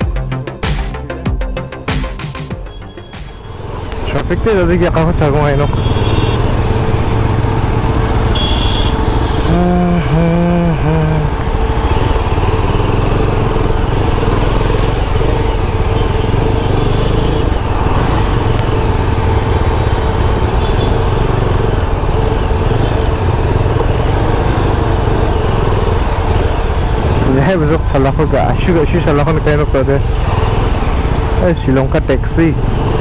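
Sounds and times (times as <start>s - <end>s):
motorcycle engine running: 0.0s - 33.0s
vehicle horn honking: 5.4s - 10.1s, 15.8s - 21.4s.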